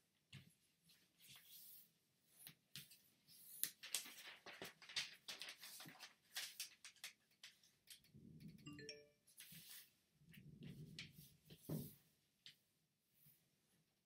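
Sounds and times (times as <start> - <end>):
paper rustling and crinkling: 2.4 - 8.1.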